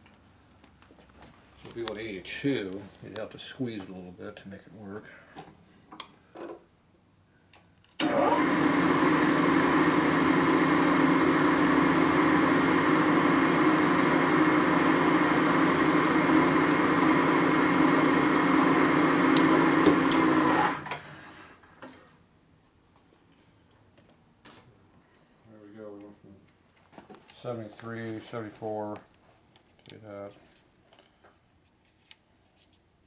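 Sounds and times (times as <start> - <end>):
milling machine spindle running: 8.0 - 20.9
motor winding down: 8.0 - 21.3.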